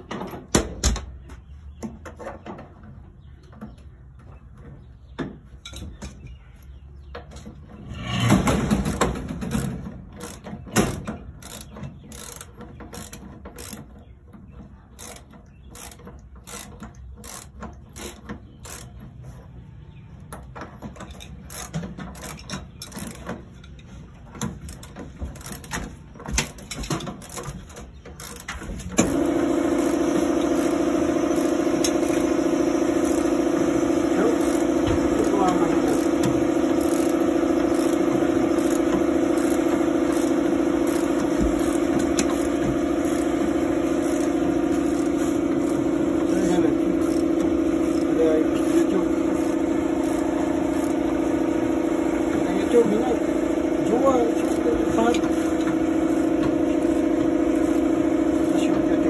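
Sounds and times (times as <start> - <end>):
motor humming: 27.2 - 59.0.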